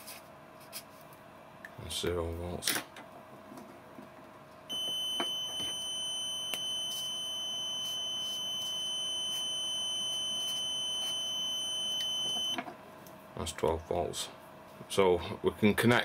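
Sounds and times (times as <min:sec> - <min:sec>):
multimeter steady beep: 0:04.7 - 0:12.6.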